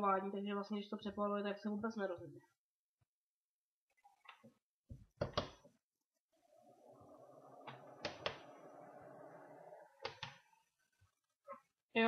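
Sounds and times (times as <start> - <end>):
small blower fan motor humming: 6.4 - 10.2.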